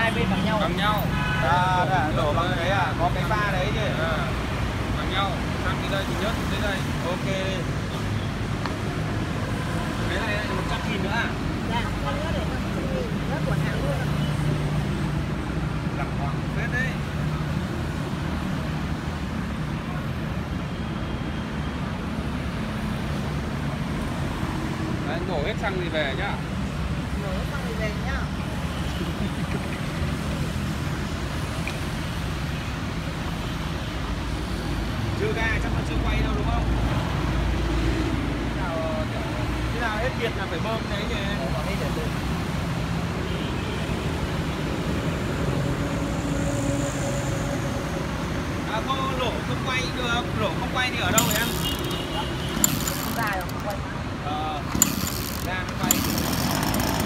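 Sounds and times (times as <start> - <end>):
road traffic hum: 0.0 - 57.0
two-stroke engine idling: 51.0 - 53.8, 54.7 - 57.0.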